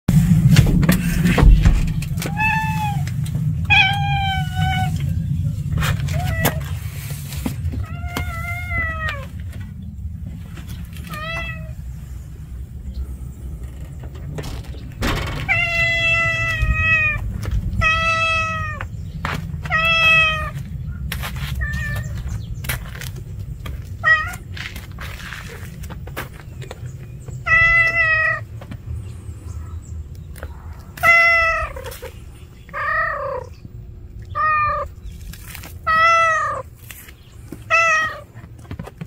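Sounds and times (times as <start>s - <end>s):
cat meowing: 2.1s - 5.1s, 5.9s - 6.7s, 7.8s - 9.4s, 11.0s - 11.8s, 15.4s - 18.8s, 19.7s - 20.6s, 21.6s - 22.1s, 27.4s - 28.5s, 31.0s - 32.1s, 32.7s - 33.5s, 34.2s - 34.9s, 35.8s - 36.7s, 37.7s - 38.3s.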